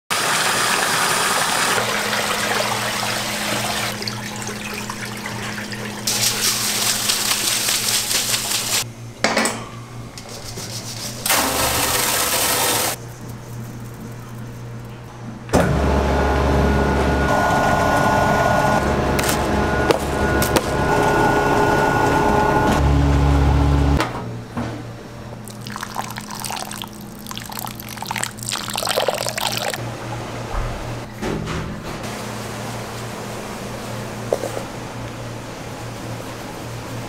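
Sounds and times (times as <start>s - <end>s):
water running and splashing: 0.2s - 8.8s, 25.5s - 29.8s
low machine hum: 1.4s - 37.0s
rice grains pouring: 6.1s - 8.8s, 25.5s - 29.8s
machine running with deep hum: 13.0s - 24.0s.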